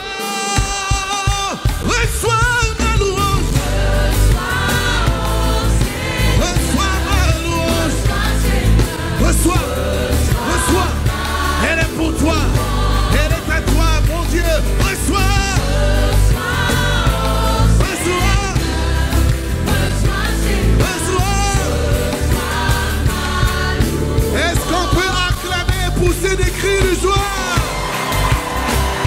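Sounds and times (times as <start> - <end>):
band playing with heavy bass: 0.0 - 29.0
choir singing: 0.0 - 29.0.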